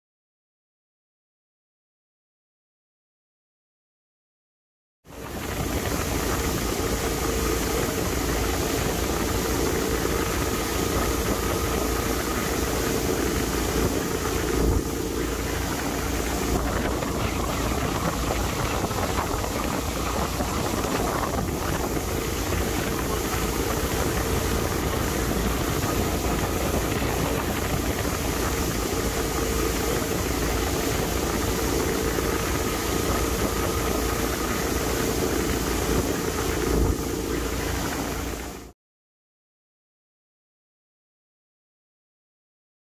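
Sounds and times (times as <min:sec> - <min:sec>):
boat engine running: 0:05.1 - 0:38.7
wind buffeting microphone: 0:05.2 - 0:38.6.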